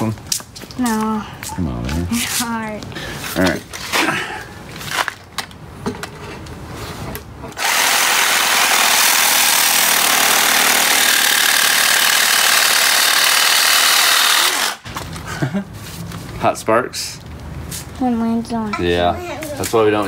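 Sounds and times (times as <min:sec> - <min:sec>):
reciprocating saw cutting metal tube: 0:07.6 - 0:14.8.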